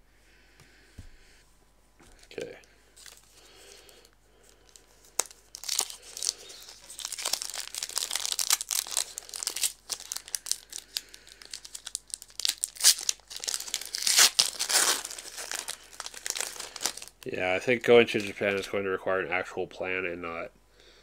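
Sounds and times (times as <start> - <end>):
wrapper crinkling and tearing: 3.0 - 18.7.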